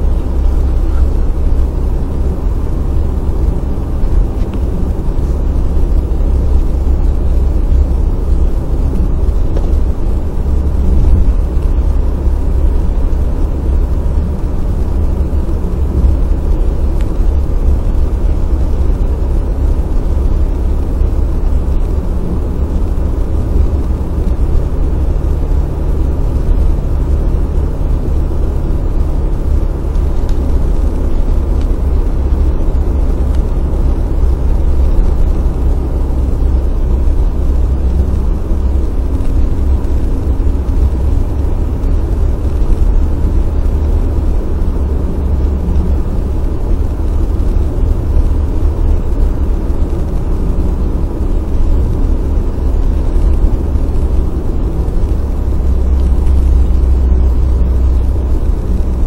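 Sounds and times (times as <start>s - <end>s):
car interior road rumble: 0.0s - 59.0s.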